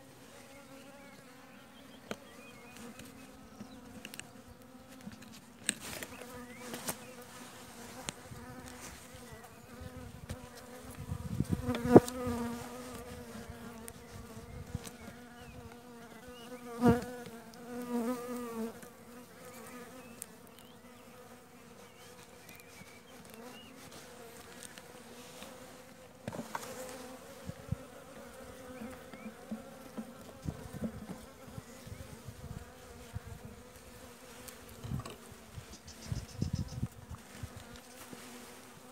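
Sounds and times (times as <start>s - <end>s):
bees buzzing: 0.0s - 38.9s.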